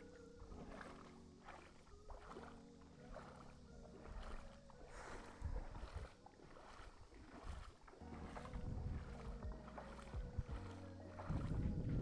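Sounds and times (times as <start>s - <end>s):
water sloshing and splashing: 0.0s - 12.0s
wind rumble on microphone: 3.1s - 12.0s.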